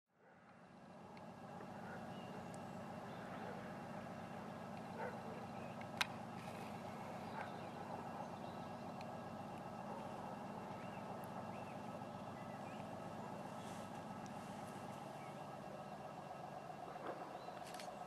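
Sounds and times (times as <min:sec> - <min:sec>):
distant diesel locomotive drone: 0:00.1 - 0:18.0.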